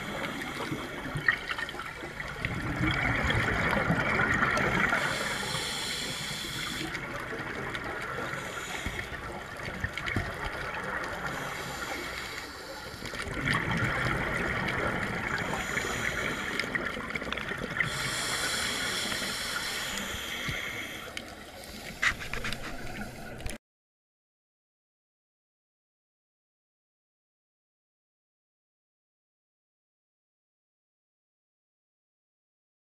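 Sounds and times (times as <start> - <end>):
diver breathing through regulator: 0.0 - 1.0, 4.6 - 7.0, 8.2 - 9.5, 11.2 - 13.3, 15.2 - 16.9, 17.8 - 23.5.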